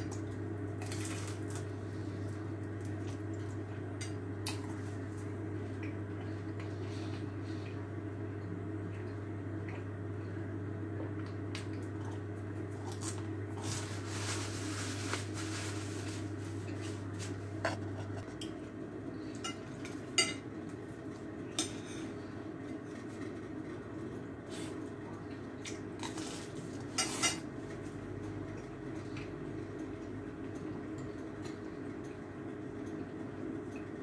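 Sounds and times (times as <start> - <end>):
low steady hum: 0.0 - 34.0
napkin rustle: 13.6 - 18.3
person chewing bread: 16.3 - 18.5.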